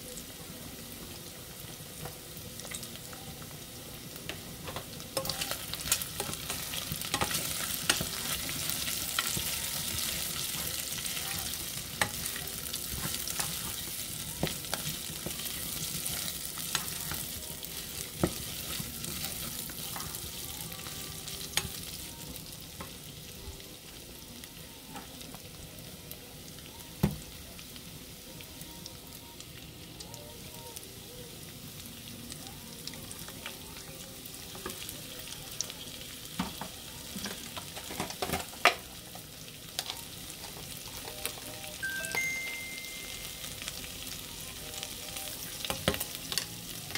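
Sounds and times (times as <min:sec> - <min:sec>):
meat sizzling in a pot: 0:00.0 - 0:46.9.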